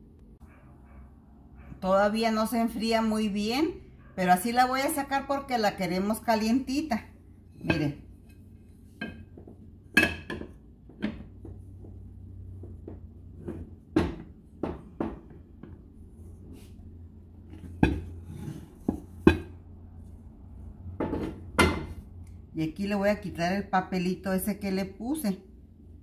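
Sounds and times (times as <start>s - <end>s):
ceramic plate knocking on frying pan: 9.0s - 11.4s, 21.0s - 21.9s.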